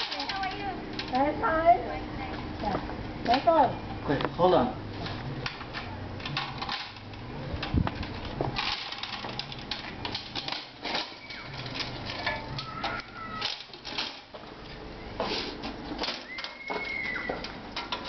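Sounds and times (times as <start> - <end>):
metal folding cart rattling: 0.0 - 1.3, 6.2 - 14.5, 15.6 - 18.0.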